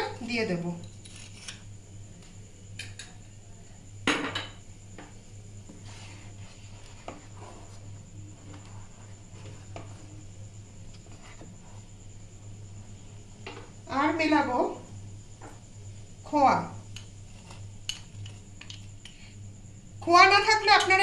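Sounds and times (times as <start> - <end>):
steady low hum: 0.0 - 21.0
wooden spatula stirring in pan: 5.7 - 10.1.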